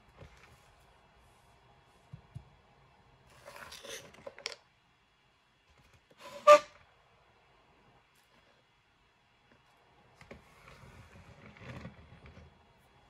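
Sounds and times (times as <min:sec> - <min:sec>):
soft rustling and scraping: 0:00.0 - 0:02.4, 0:09.6 - 0:13.0.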